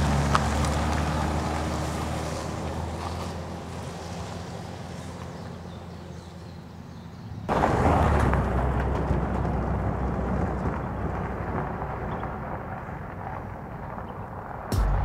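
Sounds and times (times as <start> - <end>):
truck engine humming: 0.0 - 6.9, 14.7 - 15.0
truck driving on gravel: 0.0 - 15.0.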